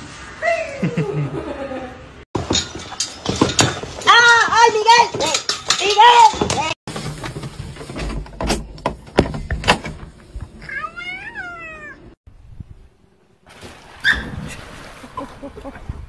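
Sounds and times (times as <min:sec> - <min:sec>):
cat meowing: 0:10.7 - 0:12.1.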